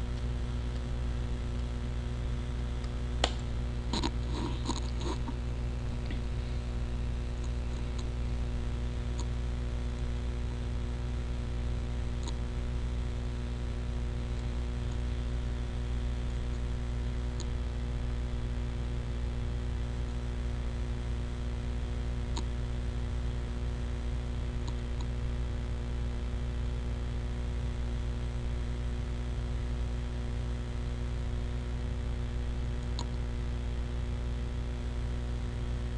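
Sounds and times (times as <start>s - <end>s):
low electrical hum: 0.0s - 35.9s
faint clicks: 12.2s - 12.4s.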